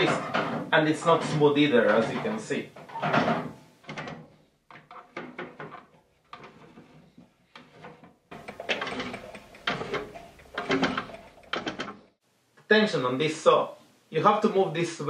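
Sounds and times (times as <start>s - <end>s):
bandsaw rattling and scraping: 4.7s - 12.1s.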